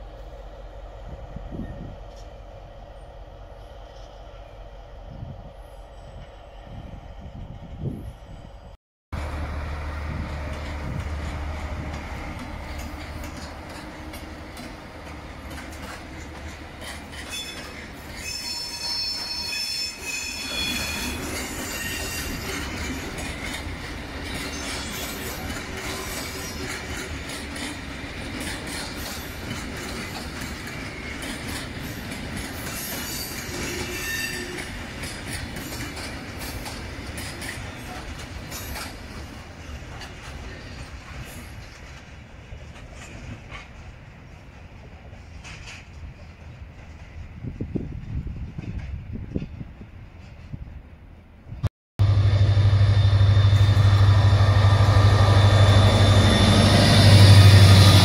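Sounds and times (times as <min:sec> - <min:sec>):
diesel locomotive engine humming: 0:00.0 - 0:18.1, 0:51.5 - 0:58.0
train wheels rolling: 0:09.2 - 0:51.0, 0:52.0 - 0:58.0
high-pitched wheel squeal: 0:17.3 - 0:22.7, 0:32.8 - 0:34.7.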